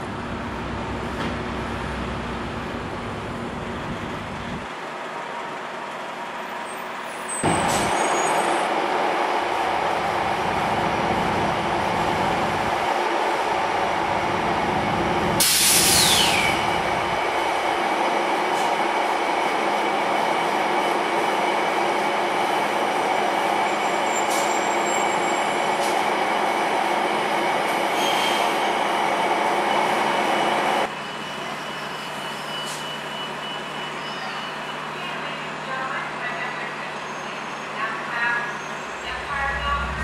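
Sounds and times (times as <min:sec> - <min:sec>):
train rumble: 0:07.4 - 0:30.9, 0:38.9 - 0:40.0
standing train hum and hiss: 0:08.6 - 0:23.8
air hiss burst: 0:15.4 - 0:16.4
brake squeal falling in pitch: 0:31.0 - 0:35.1.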